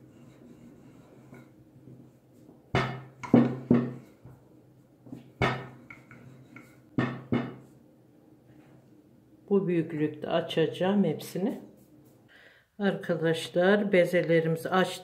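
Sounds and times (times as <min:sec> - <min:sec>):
dough rolling and handling: 0:00.0 - 0:09.1
wooden rolling pin knocks: 0:02.7 - 0:04.0, 0:05.4 - 0:06.2, 0:07.0 - 0:07.6.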